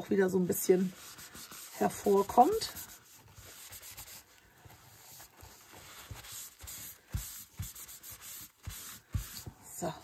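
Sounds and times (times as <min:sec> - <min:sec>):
paper towel rubbing on paper: 0:00.1 - 0:09.5.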